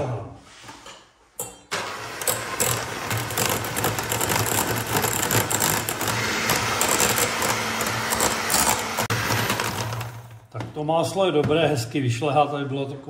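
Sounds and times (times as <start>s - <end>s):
beaters rattling against bowl: 1.7s - 10.4s
electric hand mixer running: 1.7s - 10.4s.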